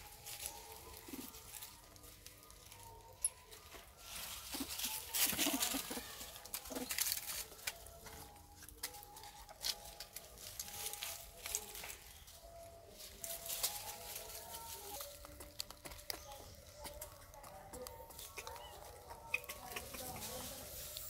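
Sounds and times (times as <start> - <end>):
rustling in dry leaves: 0.0 - 21.0
macaques squealing: 5.3 - 7.0, 16.1 - 20.4.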